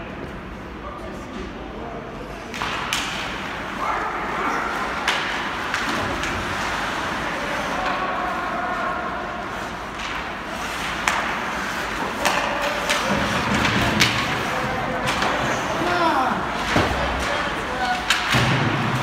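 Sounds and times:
murmur of crowd and players: 0.0s - 19.0s
hockey sticks and puck knocking: 5.0s - 6.8s, 9.9s - 19.0s.

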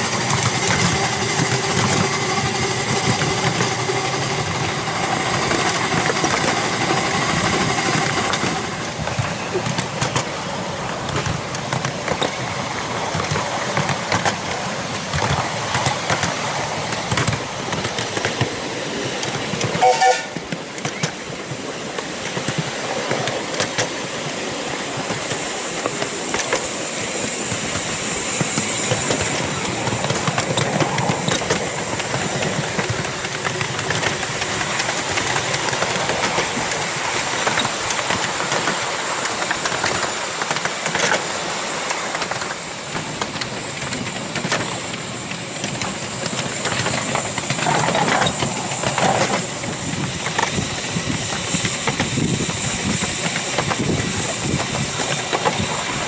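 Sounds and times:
wheels clattering on rail: 0.0s - 56.0s
steam whistle toot: 19.8s - 20.4s.

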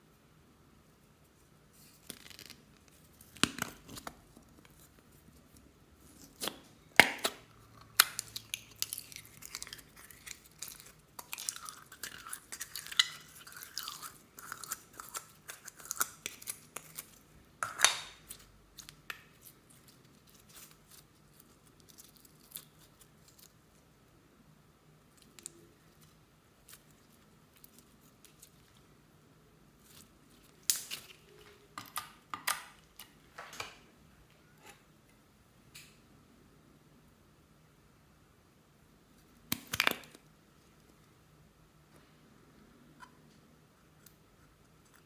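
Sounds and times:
slime crackling and squishing: 1.8s - 23.6s.

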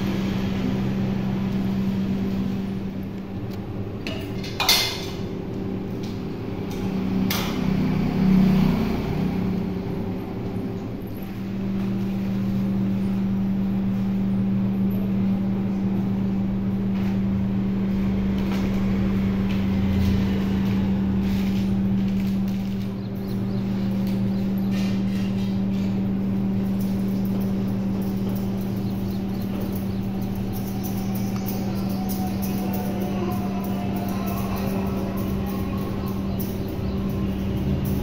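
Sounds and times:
low machine hum: 0.0s - 38.0s.

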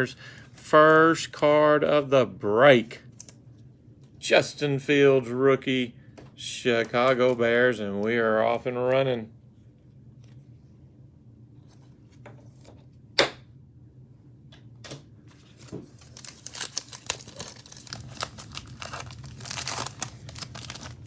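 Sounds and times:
foil wrapper tearing and crinkling: 15.4s - 21.0s.

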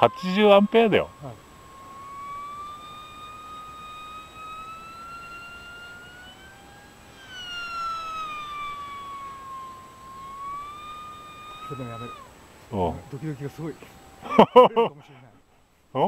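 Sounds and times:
model airplane motor whining: 0.0s - 15.7s.

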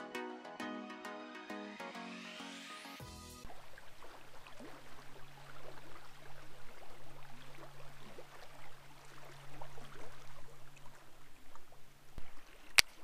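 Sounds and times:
water lapping against kayak: 3.5s - 13.0s.

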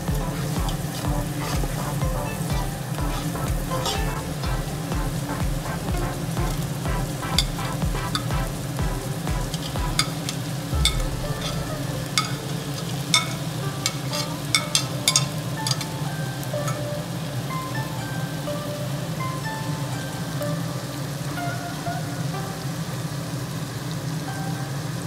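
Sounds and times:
onions sizzling in hot oil: 0.0s - 25.0s
soft background music: 0.0s - 25.0s
steel spoon clinking and scraping: 12.2s - 15.9s.

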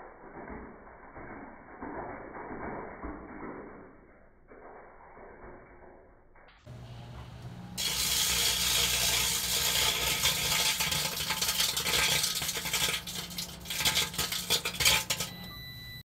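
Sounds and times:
microwave oven hum: 6.7s - 16.0s
electric arcing crackling and snapping: 7.8s - 15.2s
high steady tone: 15.1s - 16.0s.

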